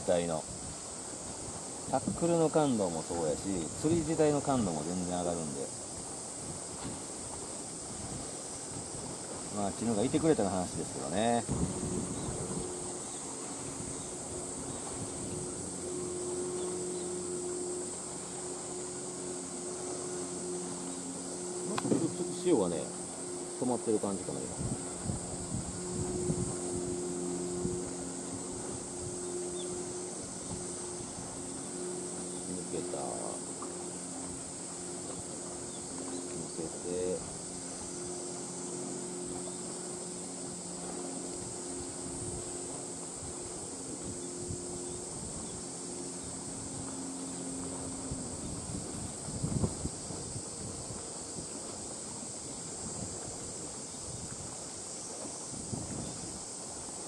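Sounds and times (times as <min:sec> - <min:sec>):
high-pitched insect drone: 0:00.0 - 0:57.0
low steady hum: 0:00.0 - 0:57.0.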